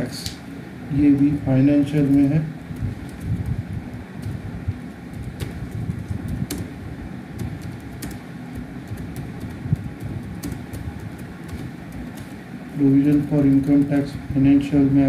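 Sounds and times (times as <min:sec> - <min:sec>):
low background rumble: 0:00.0 - 0:15.0
keyboard keys clicking: 0:01.2 - 0:03.6, 0:05.1 - 0:06.7, 0:07.3 - 0:14.2.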